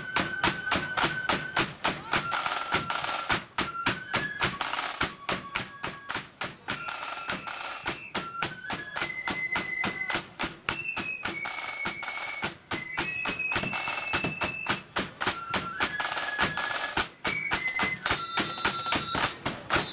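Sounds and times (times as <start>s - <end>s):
flutes playing march tune: 0.0s - 19.9s
snare drums: 0.0s - 19.9s.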